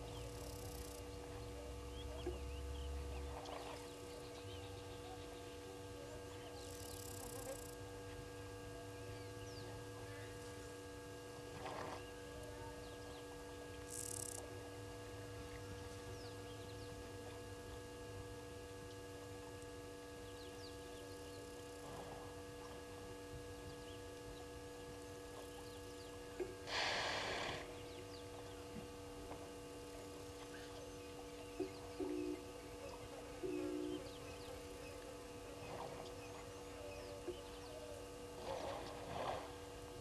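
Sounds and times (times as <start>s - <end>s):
faint chirps: 0.0s - 7.8s, 30.0s - 38.1s
steady tonal hum: 0.0s - 40.0s
high hiss: 26.6s - 27.8s.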